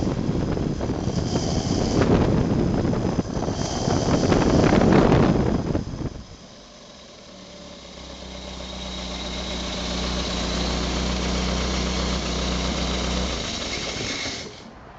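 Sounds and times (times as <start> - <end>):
engine running unsilenced: 0.0 - 14.9
hiss: 0.9 - 5.6.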